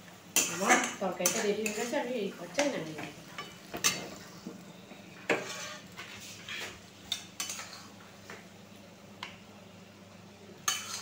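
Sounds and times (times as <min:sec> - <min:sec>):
spatula clinking on pan and plate: 0:00.4 - 0:01.9, 0:07.1 - 0:07.9, 0:10.6 - 0:11.0
spatula scraping: 0:00.4 - 0:02.8, 0:05.3 - 0:08.0, 0:10.6 - 0:11.0.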